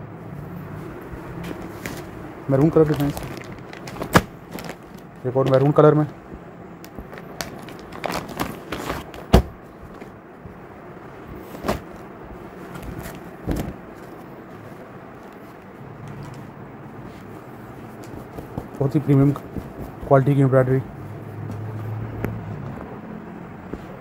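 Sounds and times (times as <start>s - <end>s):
low background noise: 0.0s - 24.0s
fabric being handled: 0.2s - 24.0s
plastic packaging crinkling: 1.5s - 6.2s, 6.8s - 10.1s.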